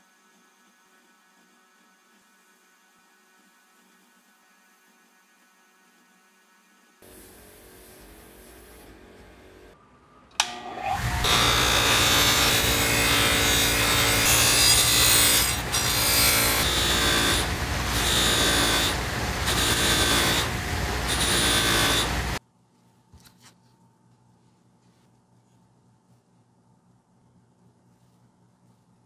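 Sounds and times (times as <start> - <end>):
bench grinder motor hum: 10.4 - 22.4.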